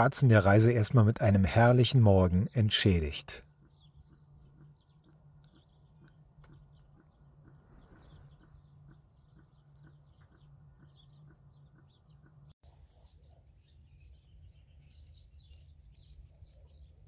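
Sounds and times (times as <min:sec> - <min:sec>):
low steady hum: 0:00.0 - 0:17.0
faint bird chirps: 0:03.4 - 0:17.0.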